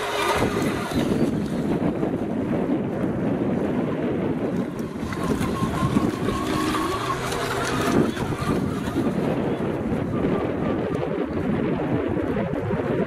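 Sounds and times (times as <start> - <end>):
thin electric motor whine: 0.0 - 2.0, 4.5 - 10.9
boat hull rushing over choppy water: 0.0 - 13.0
wind buffeting microphone: 0.0 - 13.0.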